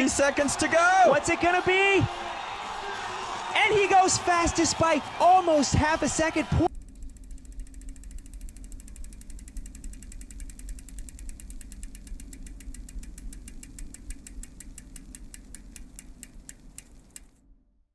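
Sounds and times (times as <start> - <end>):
rapid ratchet-like clicking: 6.7 - 17.4
steady low hum: 6.7 - 17.4.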